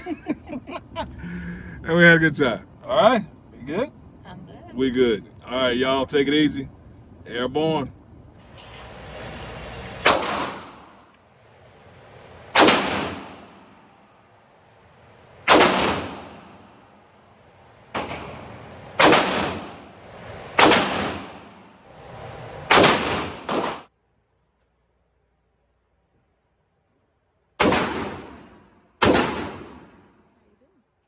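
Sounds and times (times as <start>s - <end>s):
gunshot echo off walls: 10.0s - 11.1s, 12.5s - 13.9s, 15.5s - 16.9s, 17.9s - 19.9s, 20.6s - 21.7s, 22.7s - 23.9s, 27.6s - 30.3s
rifle shots: 10.0s - 11.1s, 12.5s - 14.0s, 15.4s - 16.9s, 17.9s - 19.9s, 20.5s - 21.8s, 22.7s - 23.9s, 27.6s - 30.2s
handgun shots: 19.0s - 19.8s, 20.6s - 21.4s, 27.6s - 30.0s.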